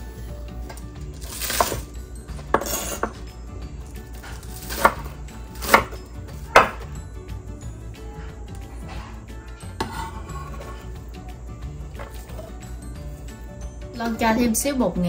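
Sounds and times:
knife chopping on wooden board: 1.2s - 1.8s, 2.5s - 3.2s, 4.2s - 7.0s.

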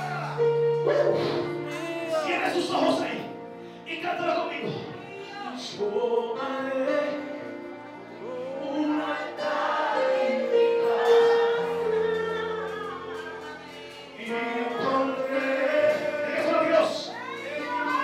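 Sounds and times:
man singing into a microphone: 4.2s - 7.6s, 14.2s - 17.1s
voices singing along: 8.2s - 18.0s.

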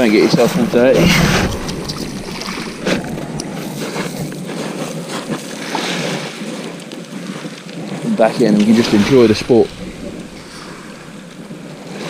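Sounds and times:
sea rushing: 0.0s - 12.0s
wind noise on microphone: 0.0s - 12.0s.

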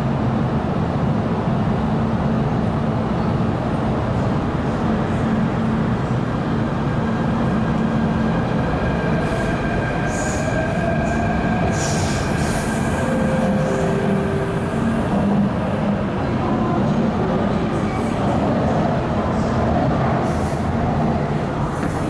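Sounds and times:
train wheels rumbling on rail: 0.0s - 22.0s
high-pitched squeals: 9.3s - 15.5s.

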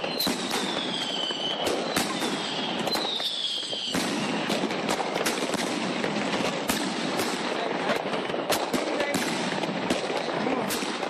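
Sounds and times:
high falling firework whistle: 0.0s - 4.6s
firework bangs: 0.0s - 11.0s.

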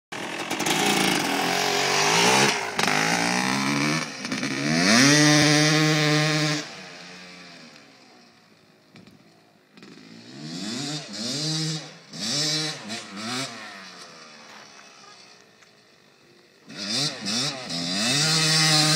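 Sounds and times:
dirt bike engine revving: 0.1s - 8.2s, 9.7s - 15.4s, 16.6s - 18.9s
distant engine rev bursts: 0.2s - 7.6s, 16.7s - 18.9s.

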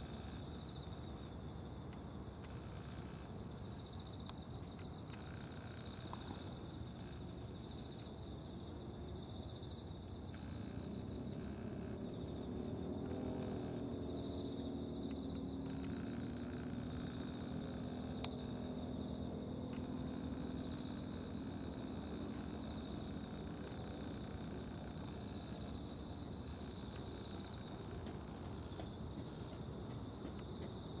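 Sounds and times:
insects trilling: 0.0s - 31.0s.

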